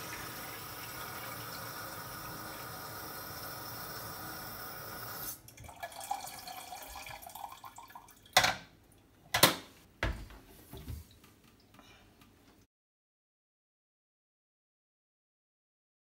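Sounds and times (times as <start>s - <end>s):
water trickle and drips: 0.0s - 3.5s, 5.4s - 8.4s.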